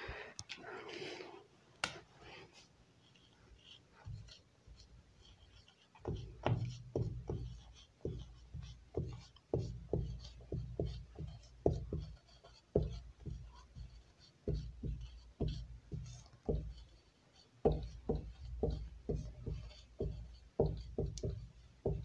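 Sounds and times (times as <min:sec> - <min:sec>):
marker tapping on whiteboard: 0:06.0 - 0:17.0, 0:17.6 - 0:22.0.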